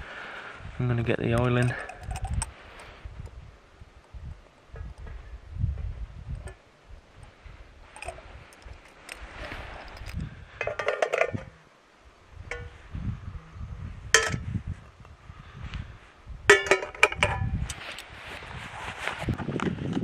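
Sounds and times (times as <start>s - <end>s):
metal cookware clinking: 1.6s - 2.5s, 10.6s - 11.4s, 16.5s - 17.4s.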